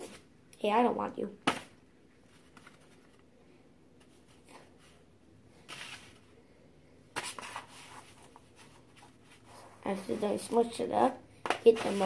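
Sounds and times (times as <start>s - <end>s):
sand scraping rustles: 11.7s - 12.0s.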